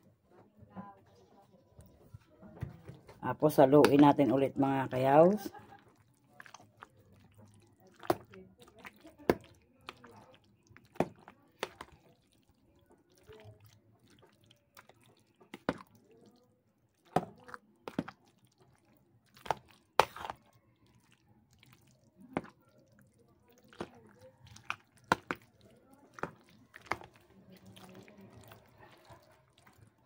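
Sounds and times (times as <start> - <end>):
spoon stirring wet salad: 1.2 - 30.0.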